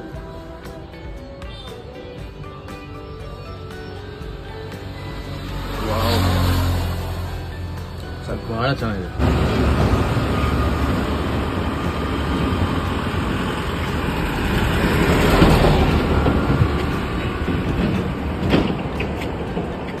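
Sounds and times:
motor vehicle passing: 4.2 - 20.0.

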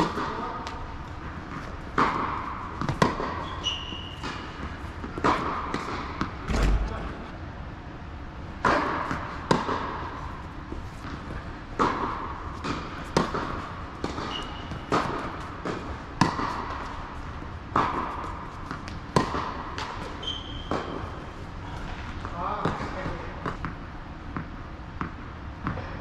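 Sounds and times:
ball bouncing on hard court: 0.0 - 7.3, 8.6 - 21.1, 22.2 - 23.8, 24.4 - 26.0
tennis ball struck by rackets: 1.5 - 3.5, 8.6 - 10.2, 11.8 - 17.1, 17.7 - 20.1.

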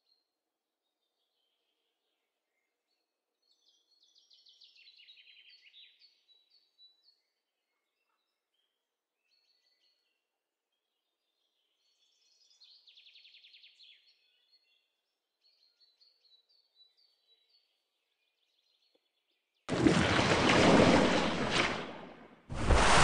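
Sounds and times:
rushing swoosh sound effect: 22.5 - 23.0.

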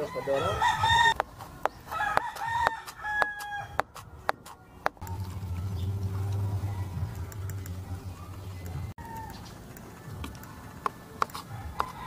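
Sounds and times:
rooster crowing: 0.0 - 1.2, 1.9 - 3.8, 6.1 - 7.4, 9.0 - 9.5, 11.5 - 12.0.

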